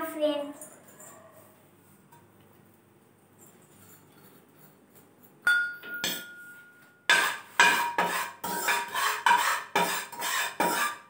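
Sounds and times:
spoon scraping metal frying pan: 0:07.1 - 0:11.0.

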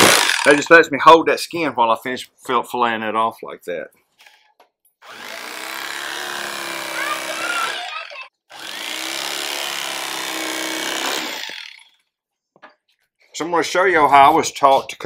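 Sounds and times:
electric knife motor humming: 0:05.0 - 0:11.9.

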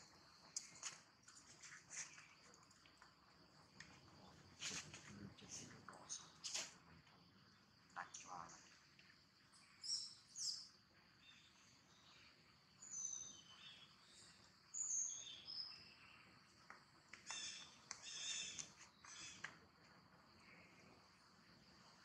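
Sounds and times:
insect hum: 0:00.0 - 0:22.0
birds chirping: 0:17.2 - 0:19.5.

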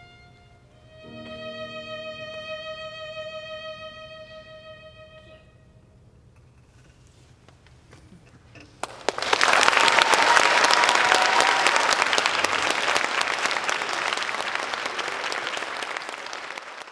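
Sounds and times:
audience applause: 0:08.8 - 0:16.9.

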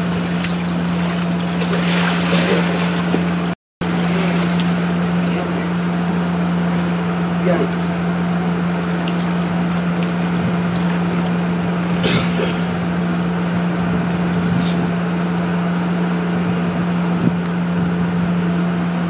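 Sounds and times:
water washing in shallows: 0:00.0 - 0:06.2, 0:08.7 - 0:13.8
low motor hum: 0:00.0 - 0:19.0
short sharp splash: 0:00.2 - 0:03.3.

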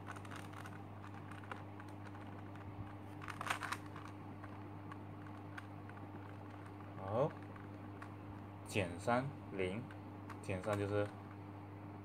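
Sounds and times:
plastic puzzle clicking: 0:00.1 - 0:08.1.

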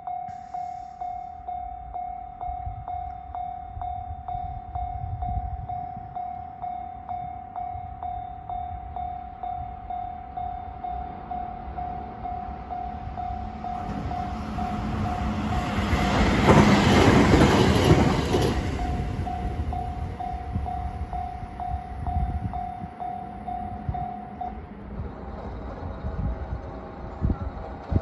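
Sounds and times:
level-crossing alarm ringing: 0:00.0 - 0:24.8
electric train passing: 0:00.0 - 0:28.0.

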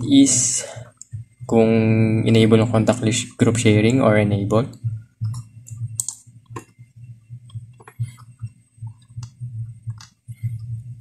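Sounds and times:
low background hum: 0:00.0 - 0:11.0
computer mouse clicking: 0:04.7 - 0:06.8, 0:07.4 - 0:10.9.

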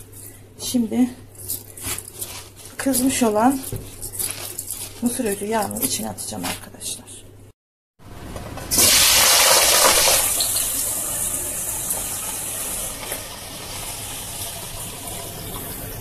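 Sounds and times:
potatoes sizzling in hot oil: 0:08.7 - 0:15.2.

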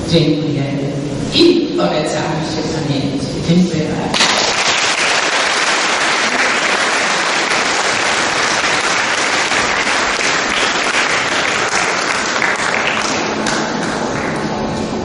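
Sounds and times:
audience applauding: 0:04.2 - 0:14.5.

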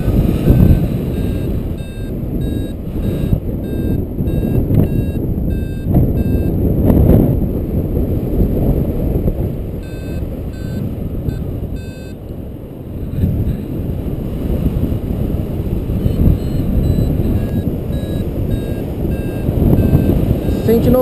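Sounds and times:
wind rushing over microphone: 0:00.0 - 0:21.0
short pitched beeps: 0:00.1 - 0:06.6, 0:09.8 - 0:12.2, 0:16.0 - 0:21.0.

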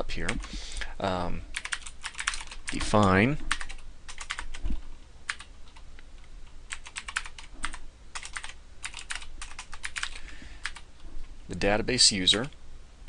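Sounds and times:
computer keyboard typing: 0:01.5 - 0:04.6, 0:05.3 - 0:05.8, 0:06.7 - 0:10.8.

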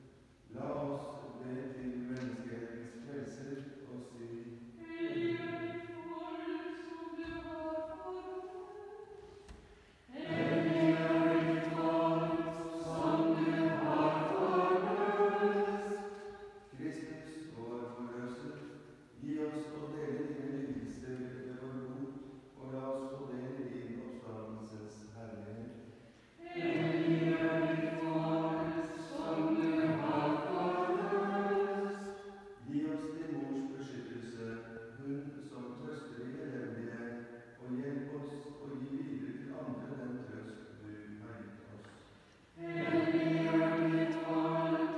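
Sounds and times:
men's choir chanting: 0:10.1 - 0:16.0, 0:26.4 - 0:32.1, 0:42.6 - 0:44.9.

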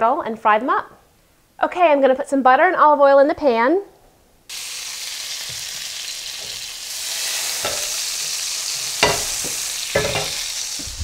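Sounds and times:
oil sizzling in skillet: 0:04.5 - 0:11.0.

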